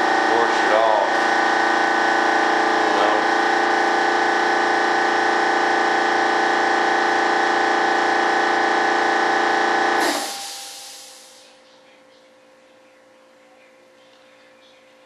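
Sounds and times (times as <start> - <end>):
air motor humming and hissing: 0.0 - 11.6.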